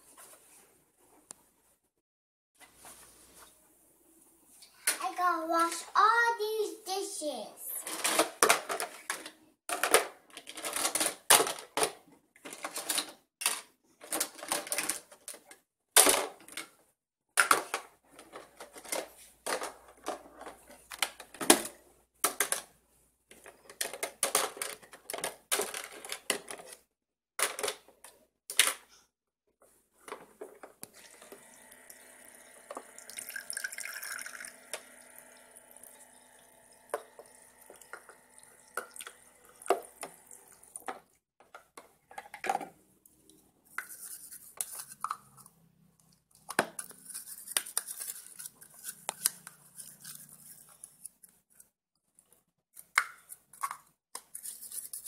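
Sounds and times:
plastic toy dishes clattering: 7.8s - 16.7s, 17.4s - 22.7s, 23.3s - 26.8s, 27.4s - 27.9s, 40.8s - 42.8s
thin stream of running water: 30.9s - 40.9s.

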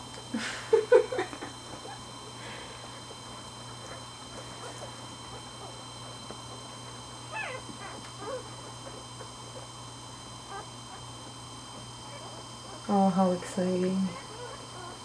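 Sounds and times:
puppies squeaking and whimpering: 7.2s - 9.6s, 10.4s - 11.3s, 12.0s - 12.9s, 14.2s - 15.0s
puppy high cry: 7.3s - 8.7s, 10.5s - 11.0s, 12.0s - 12.8s, 14.2s - 15.0s.

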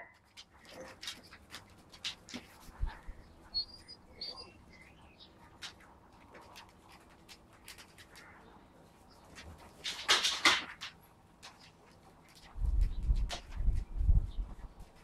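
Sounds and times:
puppy claws clicking on wood: 0.1s - 3.1s, 5.4s - 8.4s, 9.2s - 13.8s
puppy squeaks: 3.5s - 4.6s.

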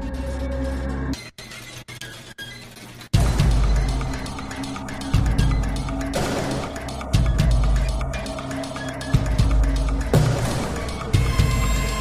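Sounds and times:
music with heavy bass beat: 3.2s - 12.0s.

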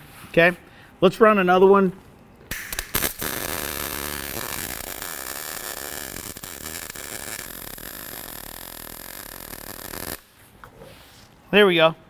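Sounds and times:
welding arc crackling hiss: 2.5s - 10.4s.

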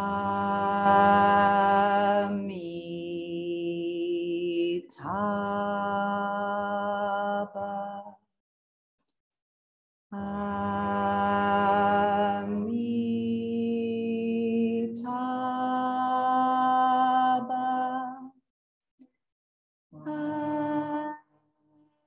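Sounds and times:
voices chanting in long held notes: 0.0s - 8.0s, 10.2s - 18.1s, 20.0s - 21.1s.

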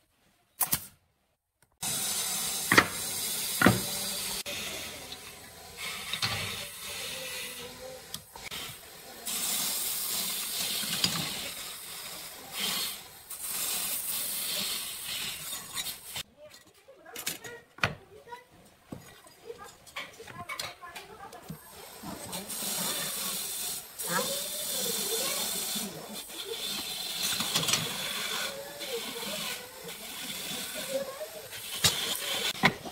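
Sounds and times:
pneumatic nailer shots: 2.7s - 3.9s.

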